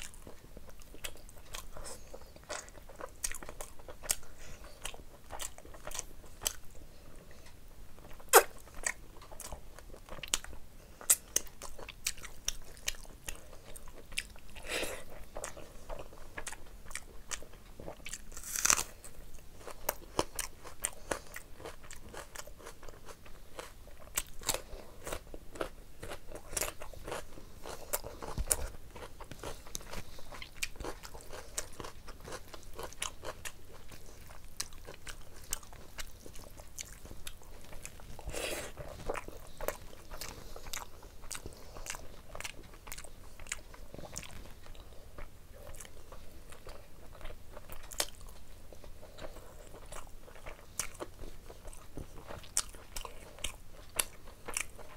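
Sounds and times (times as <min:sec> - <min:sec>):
wet chewing and mouth clicks: 0:19.6 - 0:54.9.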